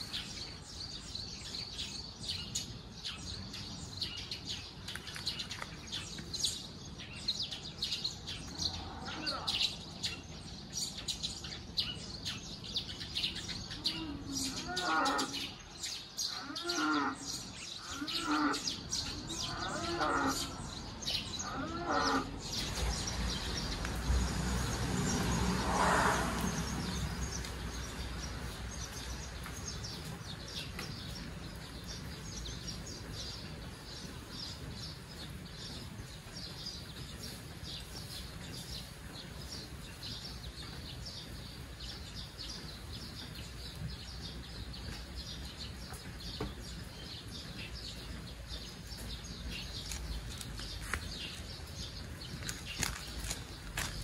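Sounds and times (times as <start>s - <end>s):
small birds chirping: 0.0s - 54.0s
steady outdoor hiss: 0.0s - 54.0s
deeper animal call: 21.4s - 22.4s.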